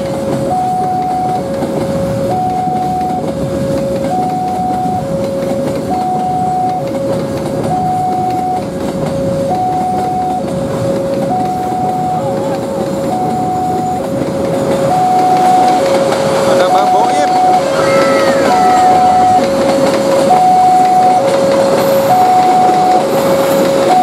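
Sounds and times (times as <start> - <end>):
train wheels rumbling on track: 0.0 - 24.0
two-tone crossing alarm: 0.0 - 24.0.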